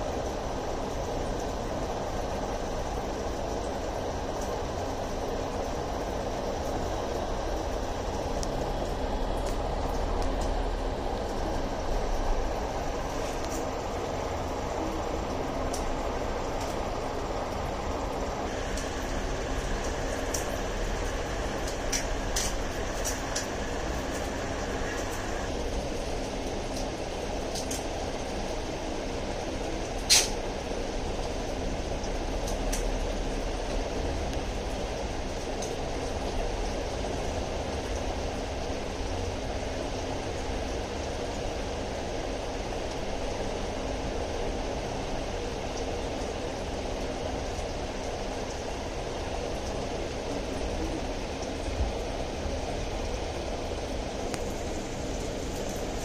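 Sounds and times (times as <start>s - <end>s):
aquarium pump humming: 0.0s - 56.0s
sharp click: 30.1s - 30.4s.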